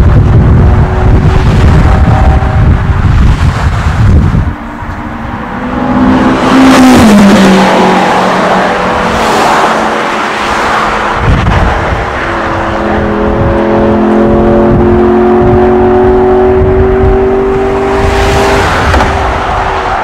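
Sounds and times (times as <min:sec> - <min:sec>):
steady engine note: 0:00.0 - 0:09.1, 0:11.1 - 0:19.3
race car engine accelerating past: 0:04.5 - 0:20.0.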